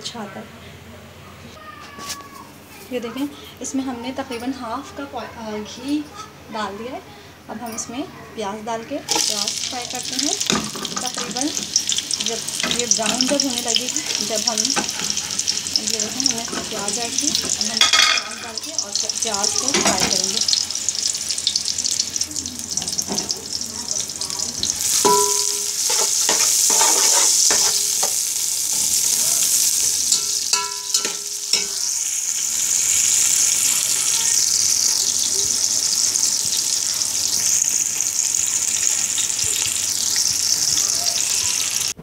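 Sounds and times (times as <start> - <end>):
onions sizzling in a pot: 8.7 - 42.0
metal spatula clinking on pot: 17.3 - 18.9, 24.9 - 28.2, 30.1 - 31.9.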